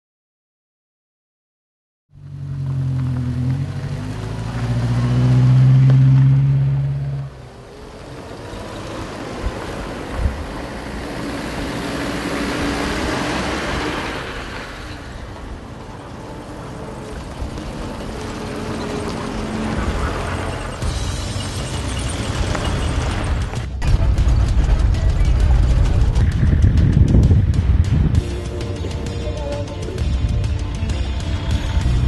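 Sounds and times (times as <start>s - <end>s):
vehicle engine running: 2.1s - 32.0s
steady rushing noise: 7.4s - 29.1s.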